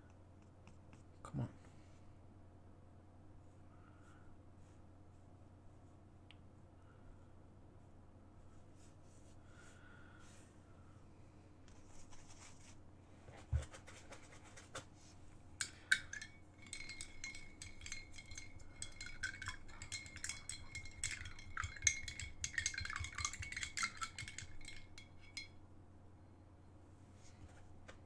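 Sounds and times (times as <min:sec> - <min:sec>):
brush clinking against glass: 0:15.6 - 0:25.6.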